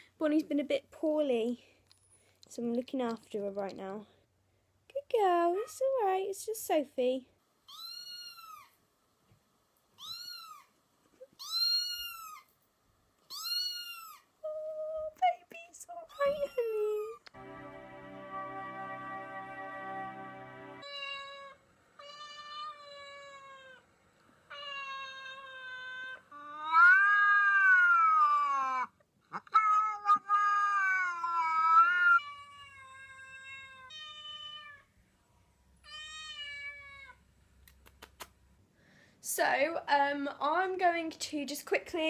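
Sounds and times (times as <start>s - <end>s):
recorded cat meows: 7.7s - 8.7s, 10.0s - 10.7s, 11.3s - 12.4s, 13.3s - 14.2s, 20.8s - 23.8s, 24.5s - 34.9s, 35.8s - 37.2s.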